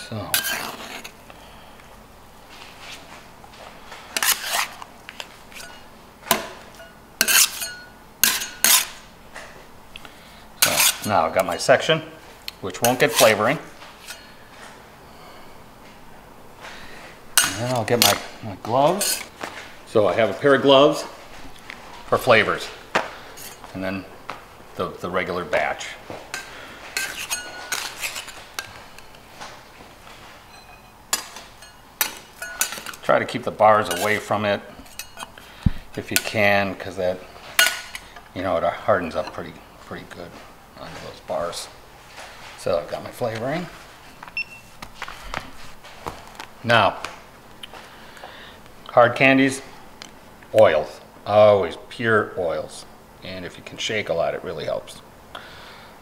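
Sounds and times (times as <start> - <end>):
metal scraper on marble slab: 0.4 - 1.1, 4.2 - 4.8, 7.2 - 9.0, 10.6 - 11.1, 12.8 - 13.4
metal scraper clinking on steel: 6.8 - 8.9, 30.5 - 33.0, 33.8 - 34.2.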